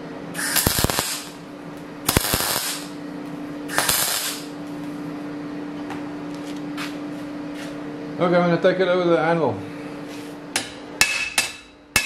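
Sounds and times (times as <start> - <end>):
arc welder crackling: 0.4 - 5.0.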